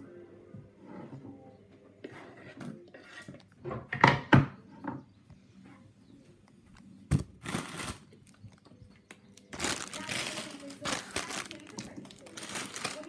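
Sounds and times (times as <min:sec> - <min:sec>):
plastic packaging crinkling: 0:07.1 - 0:13.0.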